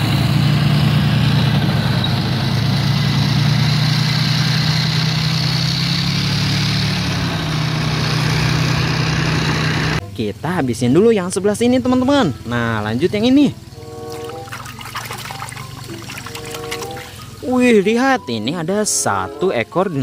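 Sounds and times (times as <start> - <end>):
heavy vehicle engine running: 0.0 - 10.1.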